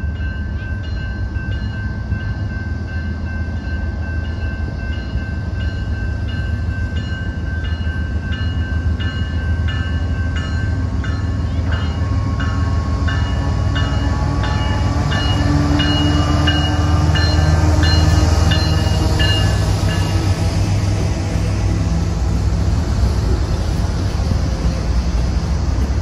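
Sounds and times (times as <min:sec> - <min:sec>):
crossing warning bell dinging: 0:00.0 - 0:20.4
diesel locomotives rumbling: 0:00.0 - 0:26.0.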